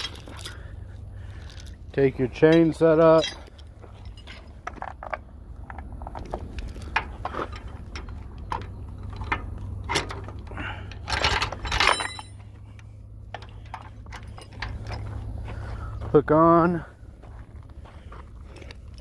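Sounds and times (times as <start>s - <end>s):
steel chain clinking: 0.0s - 5.1s, 6.6s - 12.6s, 13.4s - 15.2s.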